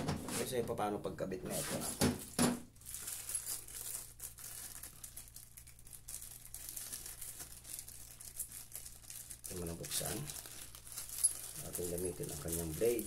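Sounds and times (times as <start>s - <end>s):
plastic bag crinkling: 2.7s - 13.0s.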